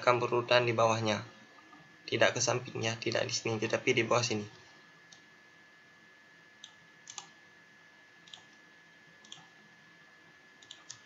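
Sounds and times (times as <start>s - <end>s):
computer mouse clicks: 6.6s - 7.4s, 8.2s - 8.6s, 9.2s - 9.5s, 10.6s - 11.0s.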